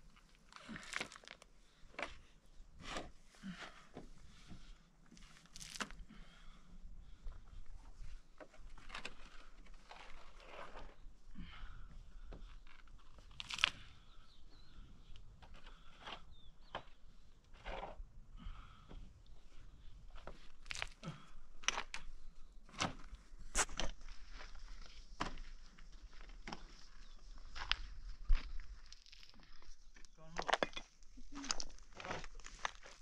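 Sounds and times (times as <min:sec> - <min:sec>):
spade digging gravelly earth: 0:08.8 - 0:11.0.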